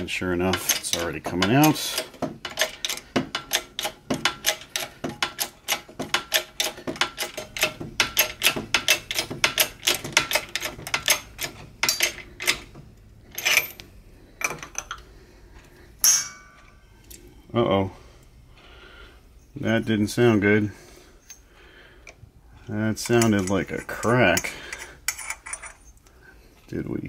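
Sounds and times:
metallic clicking and ticking: 0.4s - 12.7s
sharp metal snaps: 0.4s - 12.7s.

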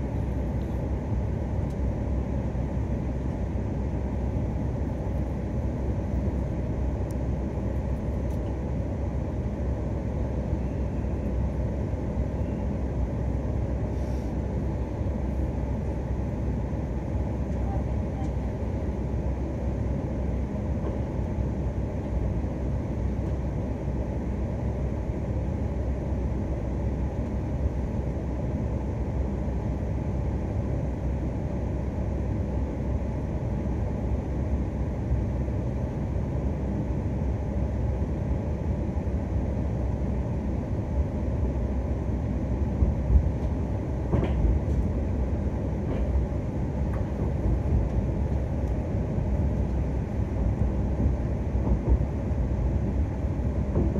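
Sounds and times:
train running gear rumble: 0.0s - 53.9s.

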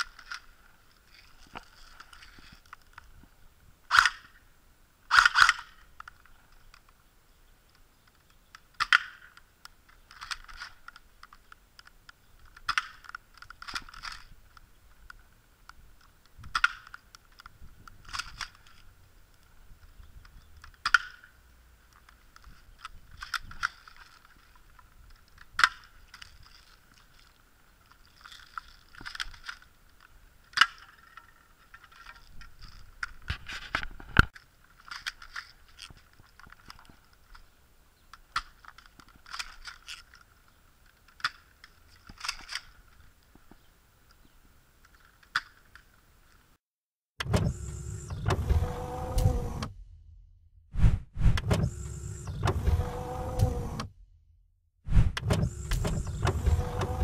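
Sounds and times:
plastic clacks: 7.7s - 21.3s, 21.9s - 37.5s, 38.1s - 43.6s.

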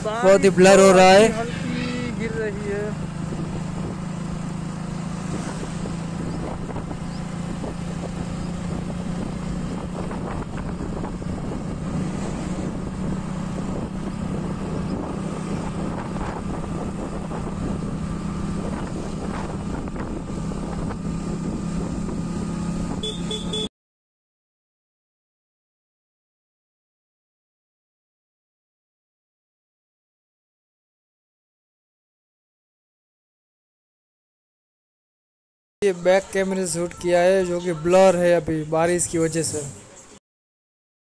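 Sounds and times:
wind buffeting microphone: 3.2s - 23.0s.

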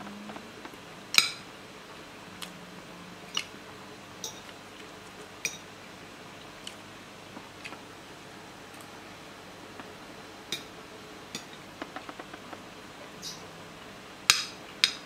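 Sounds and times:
cutlery clinking on a ceramic plate: 4.2s - 4.5s.

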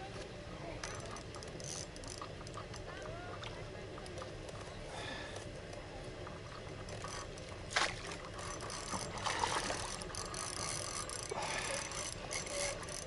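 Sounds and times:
fishing reel clicking and whirring: 0.8s - 4.6s, 6.3s - 13.0s.

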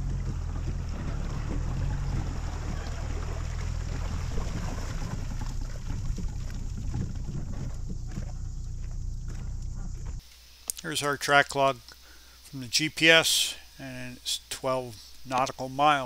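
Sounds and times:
outboard motor idling: 0.0s - 10.2s
wind buffeting microphone: 0.0s - 10.2s.

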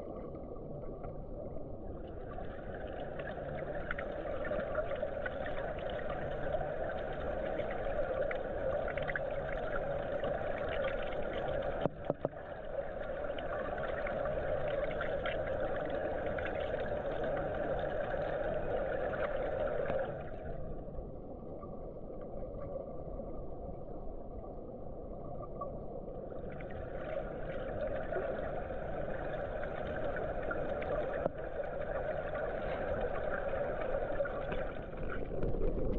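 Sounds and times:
underwater pool rushing: 26.3s - 35.9s.

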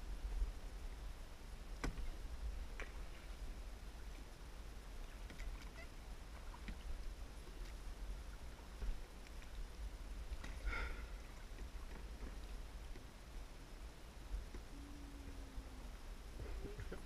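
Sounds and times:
steady low rumble: 0.0s - 17.0s
paddle strokes in water: 5.0s - 13.2s.

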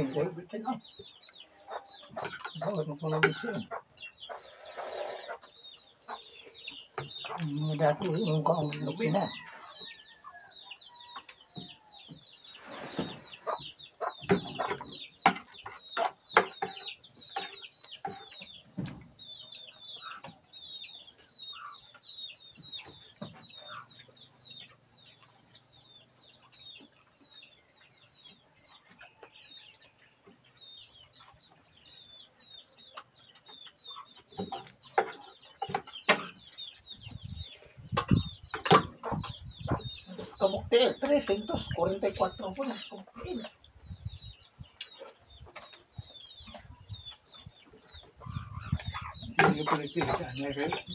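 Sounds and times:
birds chirping: 0.0s - 50.9s
bird clucking: 1.0s - 7.6s, 9.0s - 18.6s, 19.5s - 25.3s, 32.8s - 43.6s, 44.7s - 50.9s.

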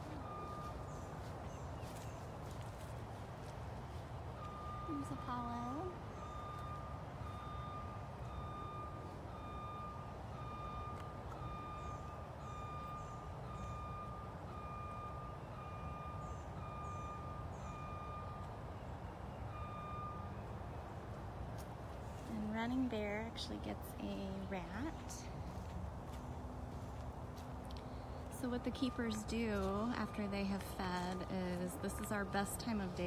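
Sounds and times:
reversing alarm beeping: 0.0s - 2.0s, 4.3s - 20.8s, 27.8s - 33.0s.

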